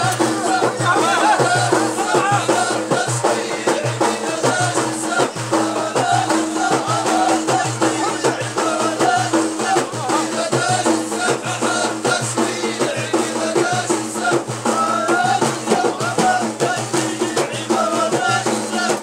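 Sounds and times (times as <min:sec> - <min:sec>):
frame drums beaten: 0:00.0 - 0:19.0
men chanting together: 0:00.0 - 0:19.0.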